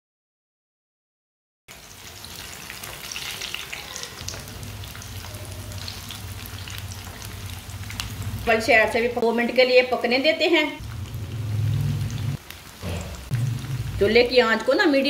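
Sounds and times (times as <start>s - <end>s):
deep-frying sizzle and crackles: 1.7s - 15.0s
steady low hum: 10.8s - 14.3s.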